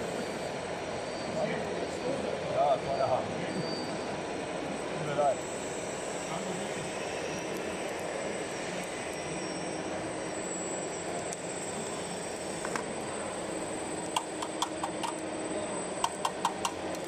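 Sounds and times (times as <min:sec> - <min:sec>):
model excavator hum: 0:03.9 - 0:17.0.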